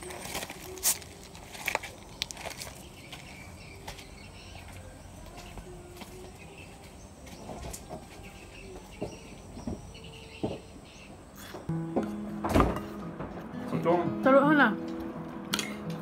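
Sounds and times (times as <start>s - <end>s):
birds chirping: 0.0s - 11.7s.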